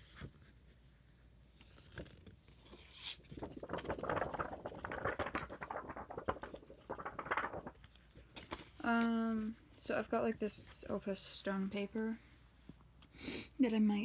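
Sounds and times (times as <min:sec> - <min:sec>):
paper rustling and crinkling: 0:01.5 - 0:09.8
paper tapping: 0:03.2 - 0:08.6.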